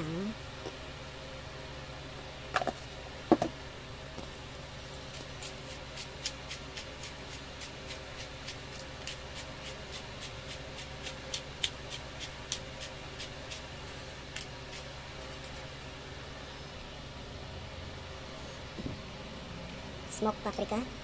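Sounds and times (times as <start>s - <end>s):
pepper grinder clicking: 5.4s - 13.7s.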